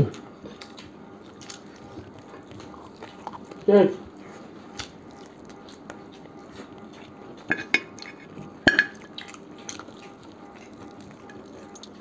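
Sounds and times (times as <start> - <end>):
clinks on ceramic plates: 7.5 - 7.9, 8.6 - 9.0.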